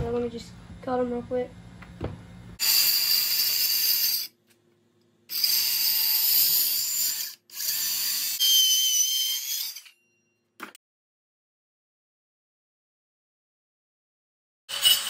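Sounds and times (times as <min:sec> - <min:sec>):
power saw cutting wood: 0:14.7 - 0:15.0.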